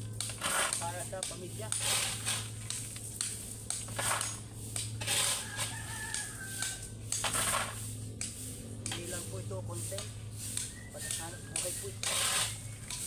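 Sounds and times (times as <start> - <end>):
shovel scraping into gravel: 0.3 - 2.7, 3.9 - 10.6, 11.5 - 13.0
rooster crowing: 5.0 - 7.0.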